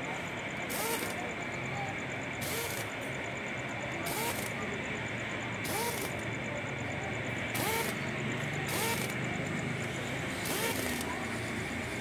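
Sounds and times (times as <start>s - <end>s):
steady shop hum: 0.0s - 12.0s
impact wrench bursts: 0.6s - 1.4s, 2.3s - 3.1s, 3.9s - 4.7s, 5.5s - 6.4s, 7.3s - 12.0s.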